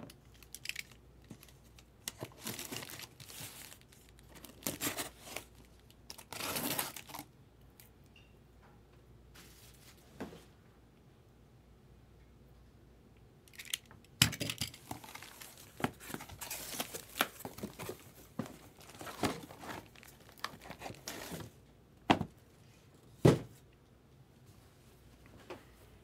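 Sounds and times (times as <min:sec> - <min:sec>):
cardboard rustling and tearing: 0:02.1 - 0:07.2, 0:14.9 - 0:21.6.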